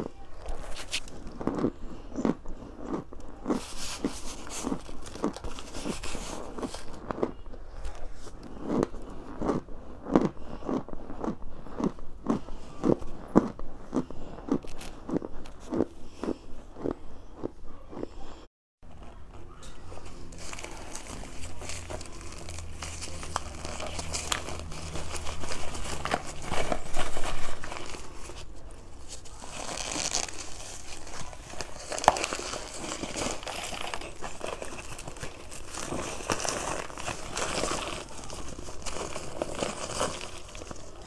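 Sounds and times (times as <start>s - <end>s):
plastic bag crinkling: 19.9s - 41.0s.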